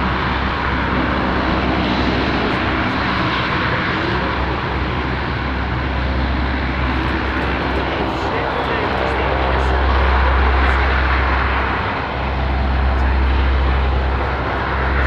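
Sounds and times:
turboprop aircraft engines roaring: 0:00.0 - 0:15.0.

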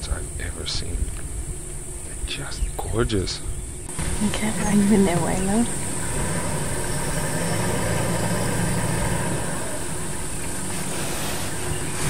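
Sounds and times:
high-pitched insect drone: 0:00.0 - 0:12.0
vehicle engine idling: 0:03.9 - 0:12.0.

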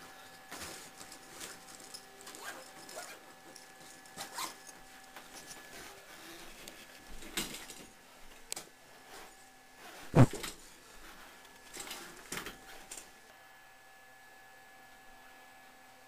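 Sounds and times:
rustling and handling noises: 0:00.0 - 0:13.2.

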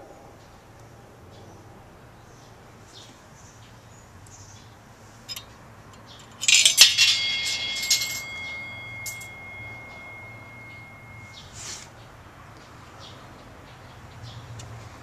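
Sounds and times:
coin clattering in metal box: 0:06.3 - 0:11.3
thin high ringing tone: 0:06.3 - 0:11.6.

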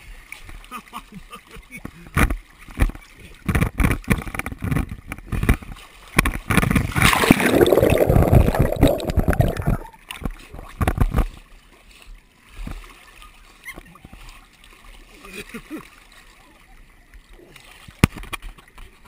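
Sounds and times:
water splashing from swimming dog: 0:07.0 - 0:09.9
muffled underwater bubbling: 0:07.0 - 0:10.0.

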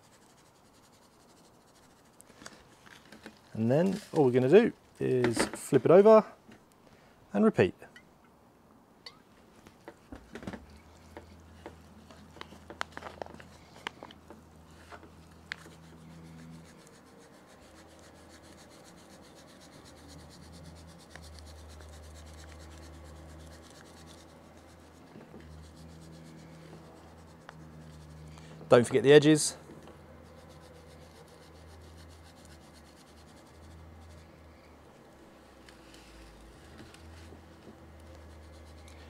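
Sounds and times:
dry rub shaken from pouch: 0:14.7 - 0:28.2, 0:36.1 - 0:39.0.

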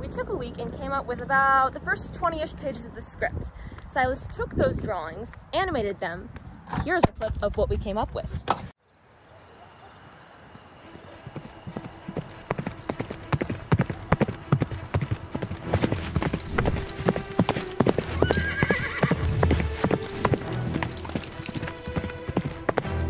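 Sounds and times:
horse galloping hoofbeats: 0:10.7 - 0:23.0
horse whinny: 0:17.2 - 0:21.0.

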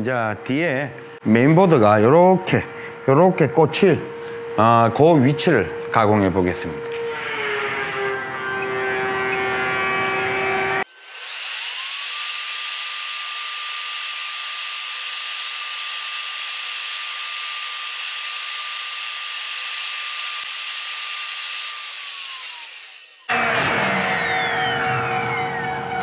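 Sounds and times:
router bit cutting wood: 0:05.3 - 0:26.0
router motor whining: 0:06.6 - 0:26.0.

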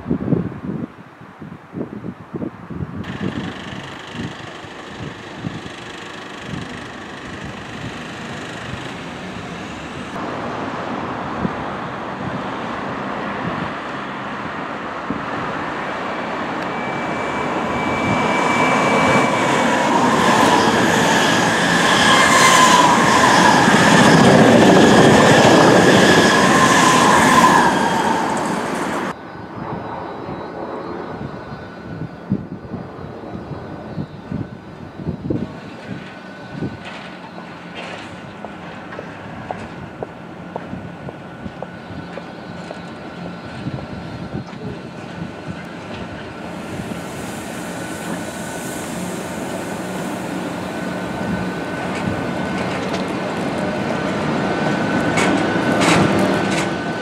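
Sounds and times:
train wheels rumbling on rails: 0:03.0 - 0:10.6, 0:16.4 - 0:29.2, 0:35.1 - 0:57.0
distant train: 0:03.0 - 0:57.0
high whining tones: 0:16.6 - 0:35.4.

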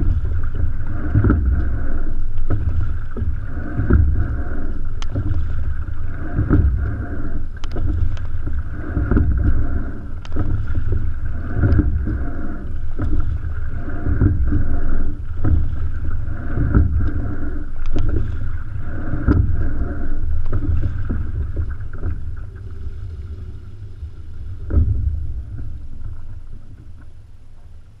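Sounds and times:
low rumble of moving boat: 0:00.0 - 0:28.0
oars knocking in oarlocks: 0:07.6 - 0:22.3.

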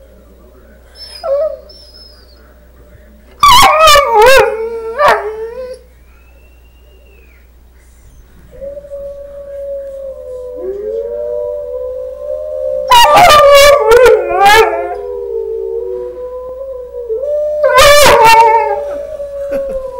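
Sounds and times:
wolves howling: 0:01.0 - 0:02.5, 0:03.4 - 0:05.8, 0:08.2 - 0:19.9
dog howling: 0:03.4 - 0:05.8, 0:08.2 - 0:19.9.

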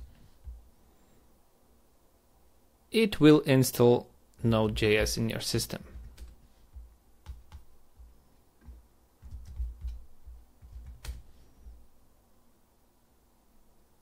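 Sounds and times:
soft low thumps: 0:00.0 - 0:00.7, 0:05.9 - 0:11.8
keyboard keystrokes: 0:07.2 - 0:07.7, 0:08.6 - 0:11.3.

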